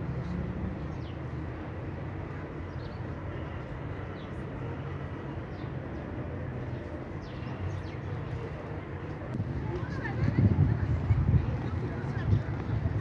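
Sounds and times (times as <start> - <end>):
distant traffic rumble: 0.0 - 13.0.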